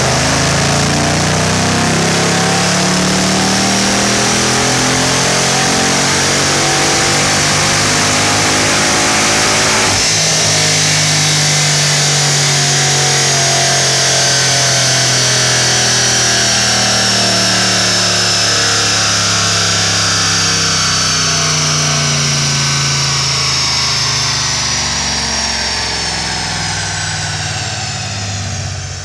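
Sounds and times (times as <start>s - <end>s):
high supercharger whine: 0.0s - 29.0s
engine exhaust note: 15.0s - 29.0s.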